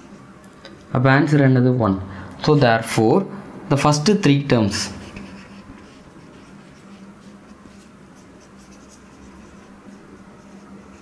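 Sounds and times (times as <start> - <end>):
low steady hum: 0.0 - 11.0
pen writing strokes: 5.0 - 11.0.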